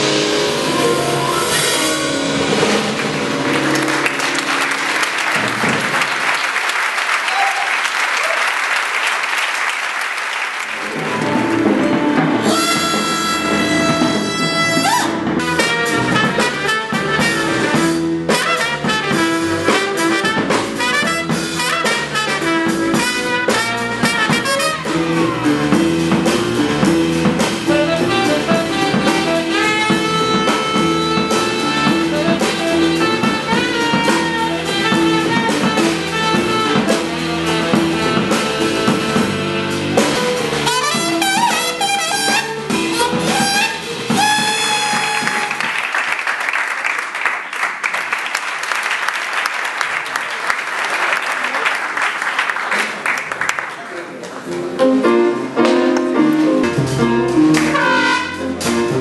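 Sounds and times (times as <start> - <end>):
double bass: 0.0 - 6.0, 10.8 - 45.7, 54.6 - 59.0
drum kit: 0.0 - 7.1, 10.6 - 46.3, 54.4 - 59.0
piano: 0.0 - 8.3, 9.0 - 59.0
saxophone: 10.8 - 25.4, 27.7 - 45.8, 57.5 - 58.8
trumpet: 10.8 - 25.8, 27.6 - 46.0, 57.2 - 59.0.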